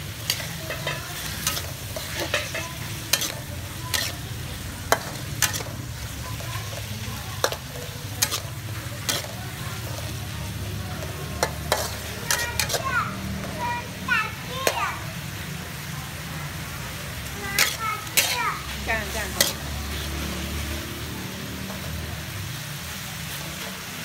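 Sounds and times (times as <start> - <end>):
metal spatula scraping a wok: 0.0 - 14.8, 17.2 - 20.6
frying sizzle: 0.0 - 24.0.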